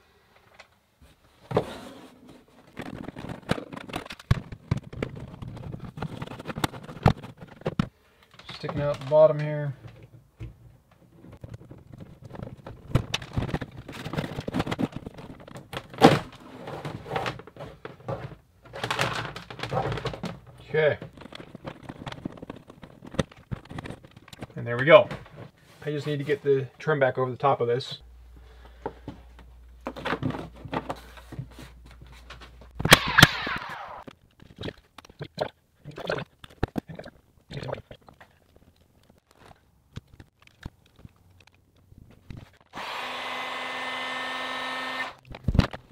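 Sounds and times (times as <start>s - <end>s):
hands handling wiring: 2.2s - 26.3s, 28.3s - 33.1s, 38.0s - 42.7s.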